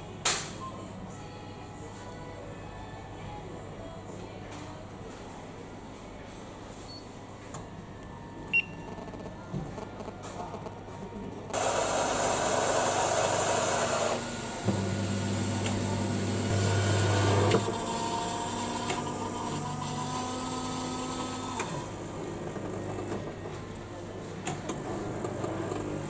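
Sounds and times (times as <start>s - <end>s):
vending machine motors running: 8.9s - 23.6s.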